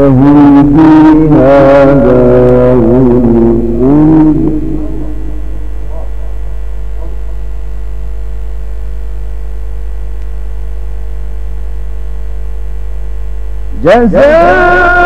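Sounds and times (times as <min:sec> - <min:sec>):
faint echoing reciting voice: 0:00.0 - 0:06.1, 0:13.8 - 0:15.0
low electrical mains hum: 0:00.0 - 0:15.0.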